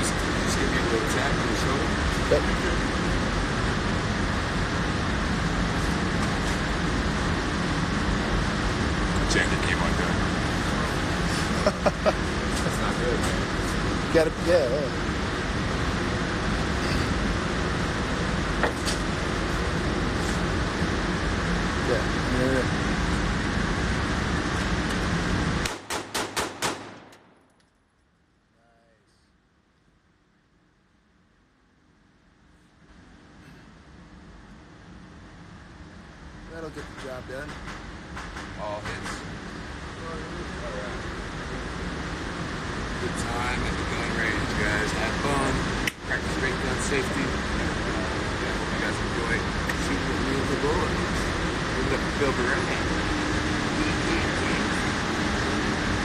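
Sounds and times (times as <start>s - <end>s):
steady rushing noise: 0.0s - 27.4s, 32.8s - 56.0s
pistol shots ringing indoors: 25.7s - 27.3s
loud rushing noise: 39.3s - 56.0s.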